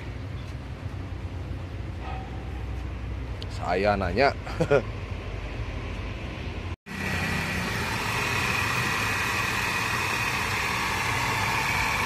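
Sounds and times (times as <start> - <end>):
car engine idling: 6.9 - 12.0
high belt pulley whine: 6.9 - 12.0.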